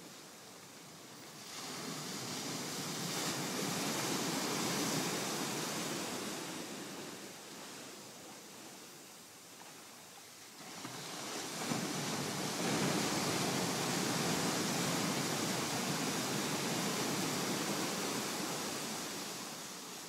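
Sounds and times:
ocean wave breaking: 1.3 - 8.1, 10.6 - 20.0.

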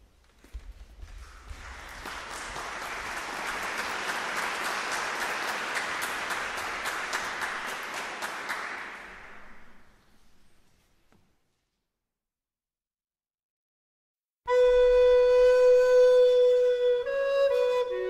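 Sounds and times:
audience applauding: 1.2 - 10.0.

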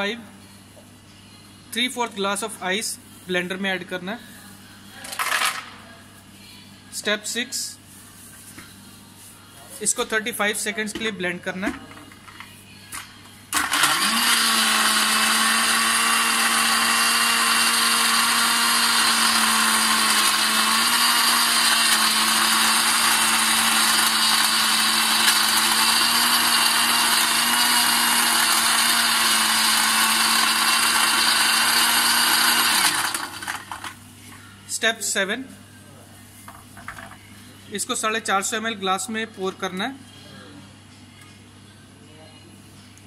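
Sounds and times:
blender motor whine: 13.6 - 34.0.

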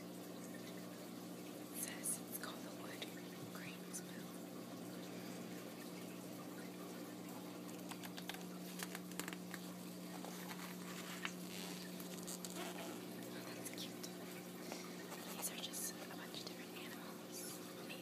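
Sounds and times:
faint low hum: 0.0 - 18.0
book pages rustling: 7.9 - 13.0, 15.0 - 15.7.

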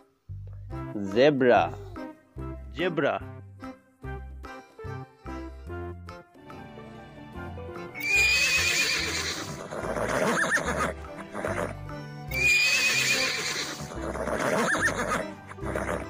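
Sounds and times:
background music: 0.0 - 16.0
horse neighing: 8.0 - 16.0.

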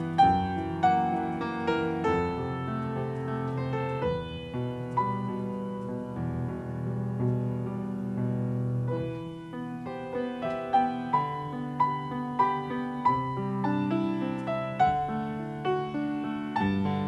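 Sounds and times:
grand piano playing chords: 0.0 - 17.0.

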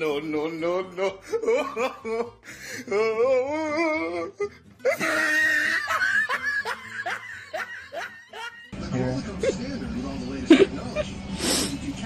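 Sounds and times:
person laughing hard: 1.0 - 8.7.

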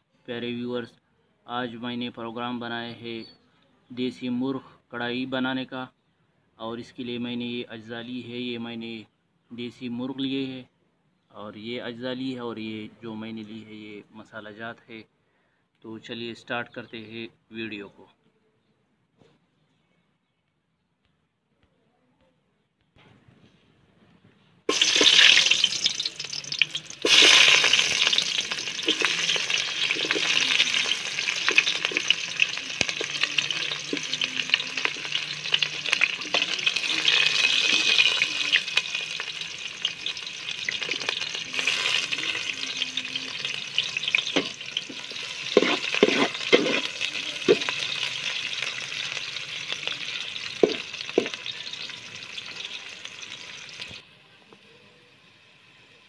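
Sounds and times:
onions sizzling in hot oil: 24.7 - 54.1.

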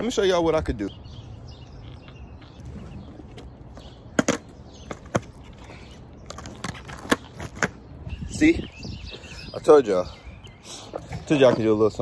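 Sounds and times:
skateboard clacking on asphalt: 3.3 - 7.8.

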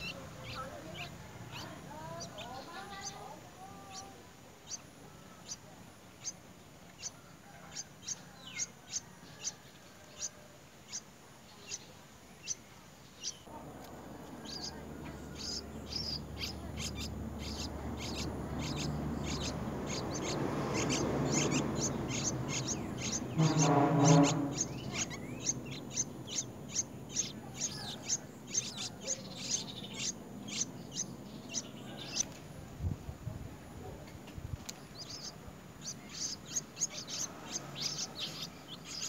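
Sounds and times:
nestlings begging chirps: 0.0 - 32.7, 33.5 - 39.0.

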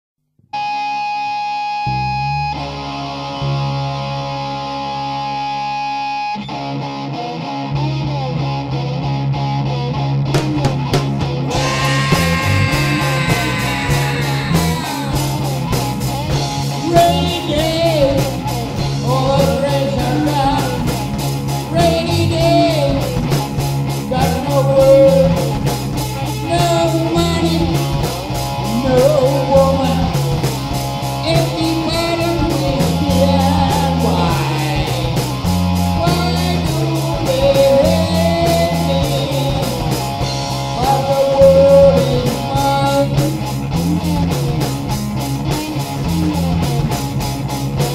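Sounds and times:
hard rock on cigar box guitar: 0.6 - 47.9
steady beat: 11.5 - 15.6.

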